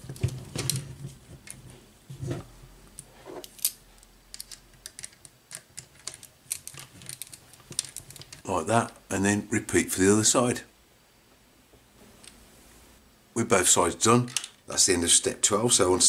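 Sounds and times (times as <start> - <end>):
plastic parts clicking: 3.4 - 8.4, 14.3 - 14.6.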